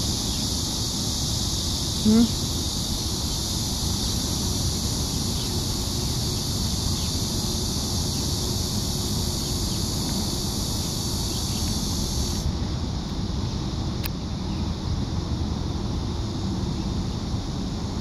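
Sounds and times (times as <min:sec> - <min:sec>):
high-pitched insect drone: 0:00.0 - 0:12.6.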